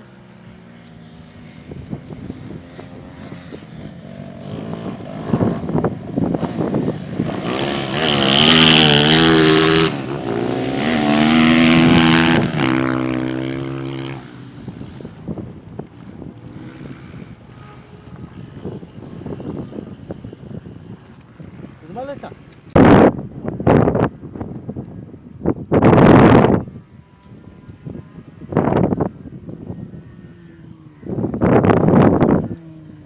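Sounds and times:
dirt bike engine revving past: 0.6 - 21.8.

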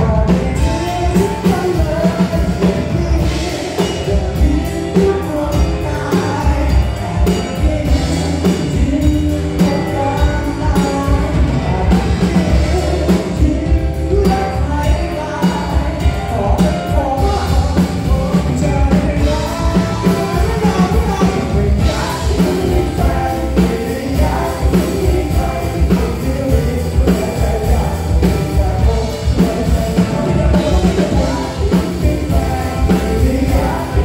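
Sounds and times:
bass guitar: 0.0 - 34.0
drum kit beat: 0.0 - 34.0
man singing lead vocal: 0.0 - 34.0.

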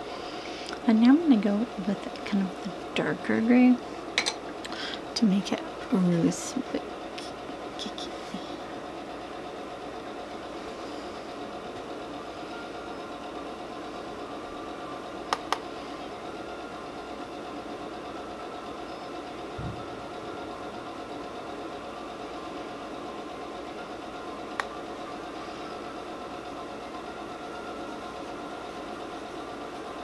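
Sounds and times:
machine hum and hiss: 0.0 - 30.0.

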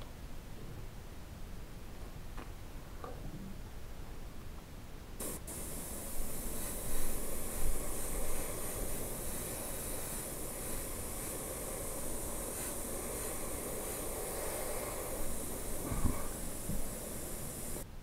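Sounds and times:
airbrush click: 5.2 - 17.9
airbrush hissing: 5.2 - 17.9.

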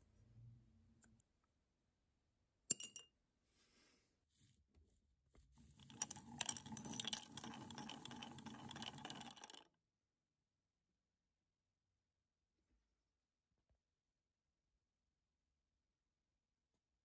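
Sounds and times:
liquid swirling in jar: 5.6 - 9.6
padlock rattling in glass jar: 5.8 - 9.6.

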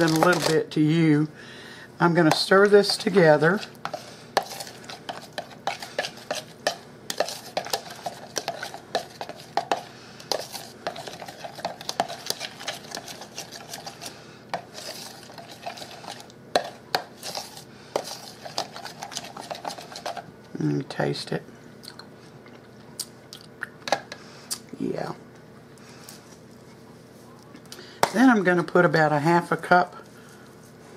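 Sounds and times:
metal spoon stirring in bowl: 0.0 - 0.6, 2.2 - 20.3.

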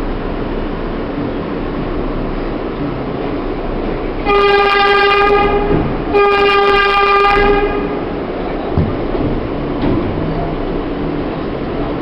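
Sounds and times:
train rumbling through tunnel: 0.0 - 12.0
subway train horn blasts: 4.2 - 8.3.

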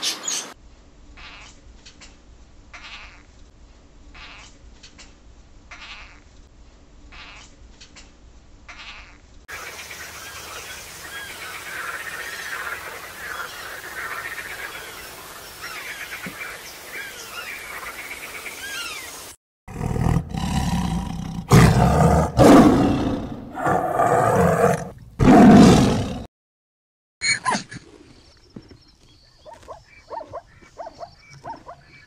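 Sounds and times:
bats chirping: 9.5 - 19.2
tiger roaring: 19.7 - 26.3.

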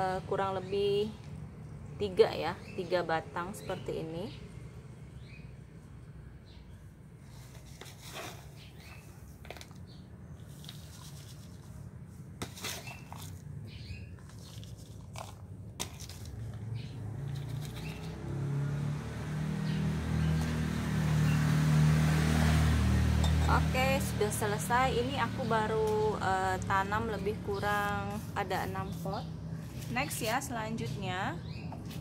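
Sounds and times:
rustling of plants and pots: 6.9 - 32.0
low engine hum: 15.5 - 32.0.

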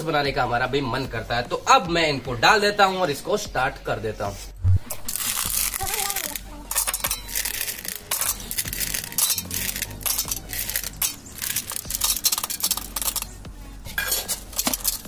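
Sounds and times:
candies clattering into steel jar: 5.0 - 15.0.

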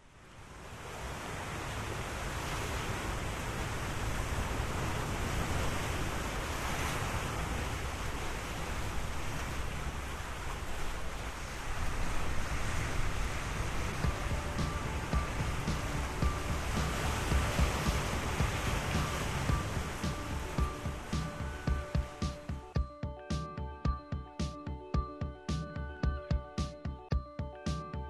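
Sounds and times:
wind rumble on microphone: 0.2 - 22.5
sea waves washing onto shore: 0.3 - 22.8.

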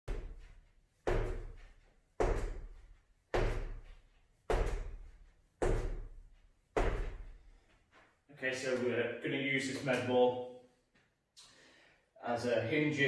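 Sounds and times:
medicine ball thudding on wall: 1.1 - 7.4.

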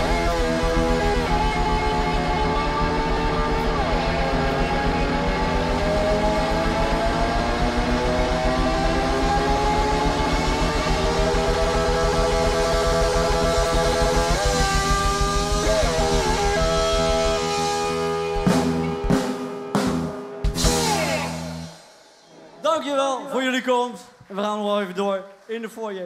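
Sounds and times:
steady drum beat: 0.0 - 22.1
electric guitars bending notes: 0.0 - 22.6.

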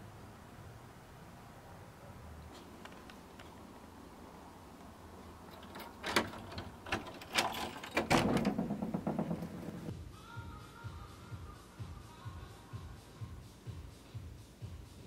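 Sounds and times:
door handle and latch clicking: 5.5 - 9.9
door scraping open: 5.5 - 9.9.

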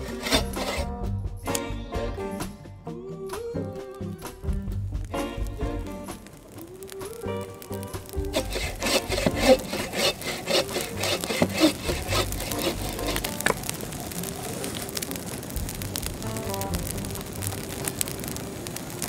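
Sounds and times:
hand saw cutting wood: 0.0 - 1.0, 8.1 - 13.6
music: 0.0 - 14.3, 14.9 - 18.0.

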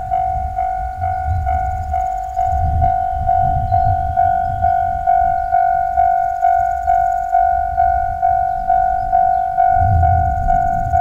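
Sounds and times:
level crossing alarm bell: 0.0 - 11.0
low rumble: 9.6 - 11.0.

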